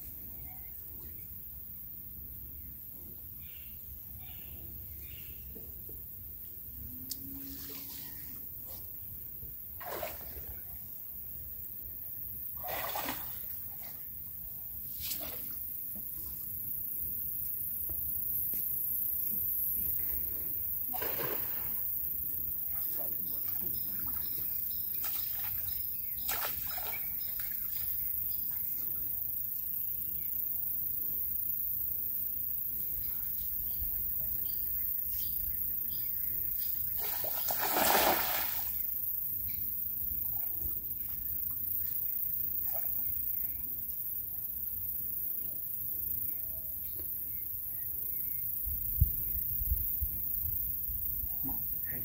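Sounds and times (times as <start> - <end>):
sharp splash: 9.8 - 10.6, 12.6 - 13.5, 37.0 - 38.8
floodwater wash around wading: 37.0 - 38.7.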